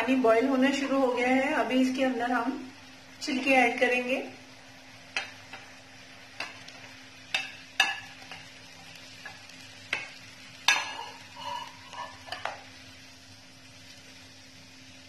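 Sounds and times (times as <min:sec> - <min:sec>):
heating pan hissing: 0:00.0 - 0:15.0
plate and peels clinking on pan: 0:07.3 - 0:12.7.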